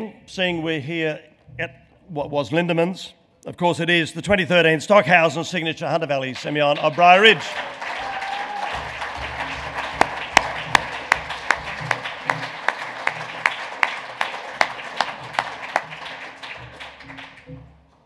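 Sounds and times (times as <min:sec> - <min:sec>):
audience applauding: 0:06.2 - 0:17.8
close loud hand clapping: 0:06.3 - 0:17.8.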